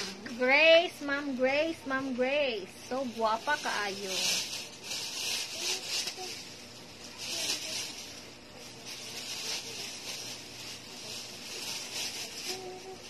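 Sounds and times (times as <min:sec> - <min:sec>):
stuffed toys rustling: 0:02.8 - 0:13.0.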